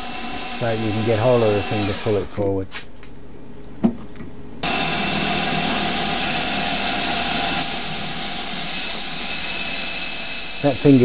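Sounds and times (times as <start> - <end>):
lathe spindle hum: 4.6 - 11.0
coolant spray hiss: 7.6 - 11.0.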